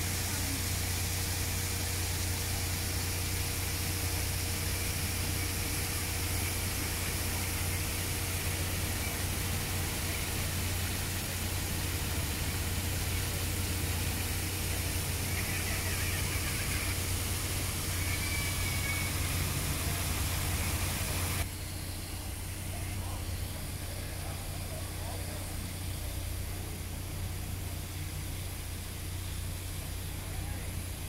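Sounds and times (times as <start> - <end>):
fountain water splashing: 0.0 - 31.0.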